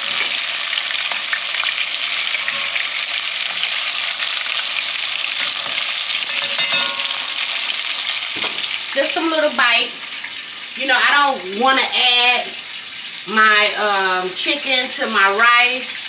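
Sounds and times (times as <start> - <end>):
spoon moving in frying pot: 0.0 - 9.0
oil sizzling: 0.0 - 16.0.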